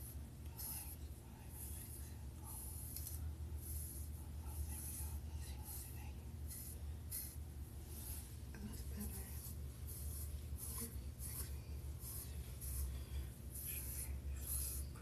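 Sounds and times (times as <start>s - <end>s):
comb scratching through hair: 0.0s - 15.0s
steady low hum: 0.0s - 15.0s.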